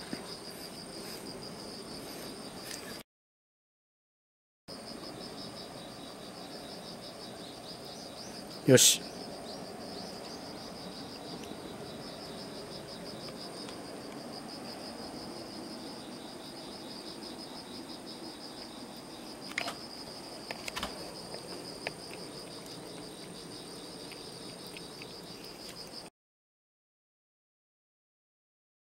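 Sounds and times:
insects trilling: 0.0 - 3.0, 4.7 - 26.1.

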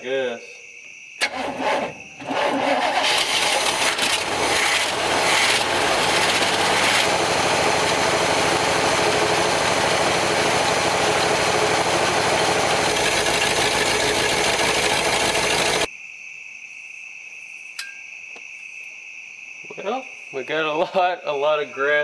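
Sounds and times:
pickup engine cranking and running: 1.2 - 15.9.

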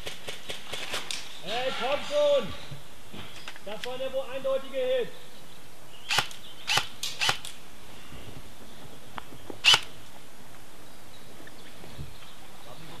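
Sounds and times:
airsoft gun shots: 6.1 - 7.5.

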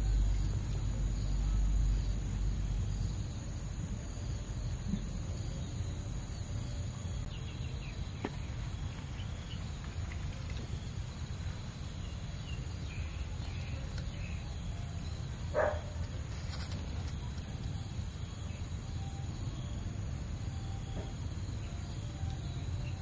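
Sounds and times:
high insect drone: 0.0 - 23.0.

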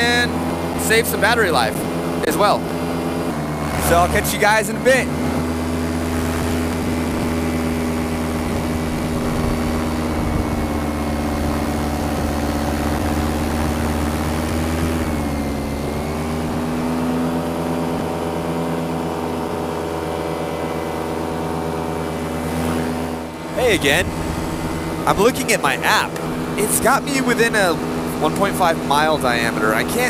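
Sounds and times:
paramotor engine and propeller: 0.0 - 30.0.

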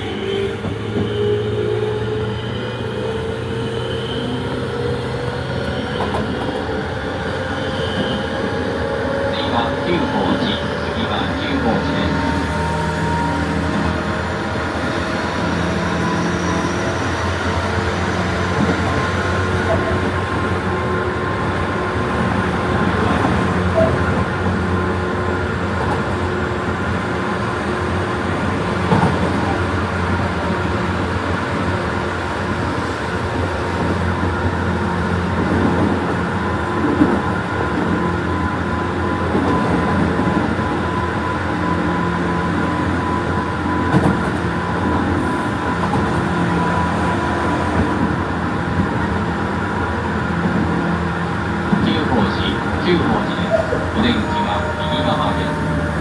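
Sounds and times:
electric train rumbling: 0.0 - 56.0.

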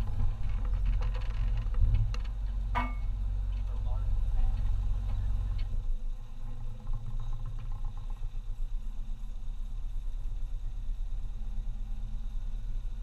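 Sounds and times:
vehicle knocks and rattles: 0.0 - 10.0
engine and drivetrain rumble: 0.0 - 13.0.

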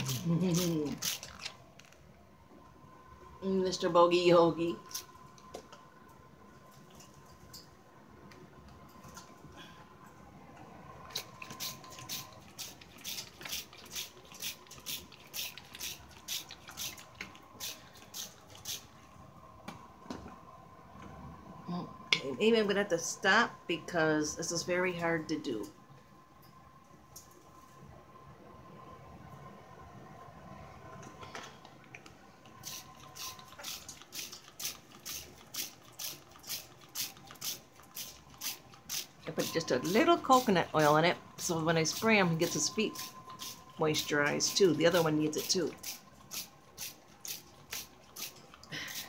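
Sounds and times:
spray bottle squirts: 32.6 - 39.1, 45.8 - 49.0.

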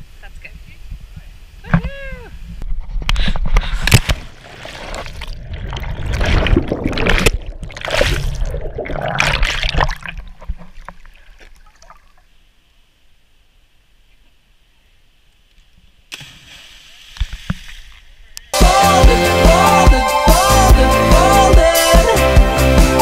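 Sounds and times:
rushing bubbling water underwater: 4.2 - 12.2.

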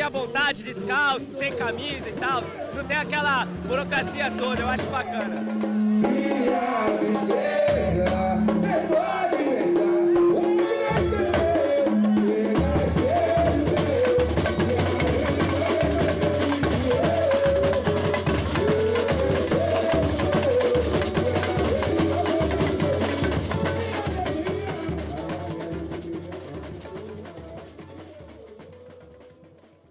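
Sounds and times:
rattling snare drums: 1.5 - 9.3, 10.9 - 29.9.

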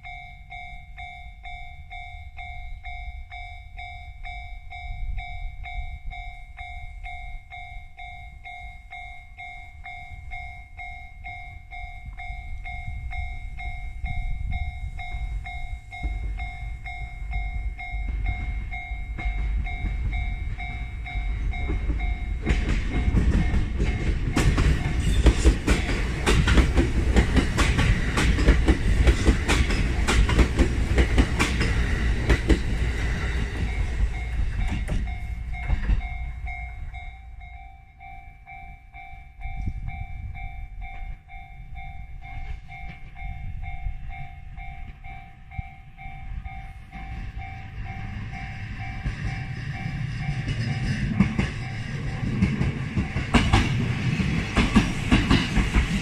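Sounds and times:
level crossing bell ringing: 0.0 - 25.1, 32.8 - 50.4
train wheels clicking on rails: 0.0 - 37.6, 39.4 - 56.0
electric train passing: 0.0 - 56.0.

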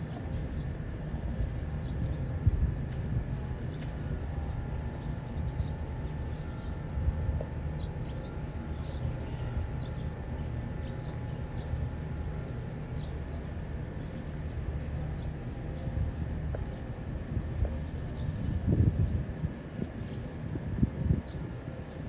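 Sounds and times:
wind on microphone rumble: 1.2 - 4.4, 15.8 - 22.0
small birds chirping: 4.9 - 7.0, 7.7 - 14.5, 15.1 - 20.5.

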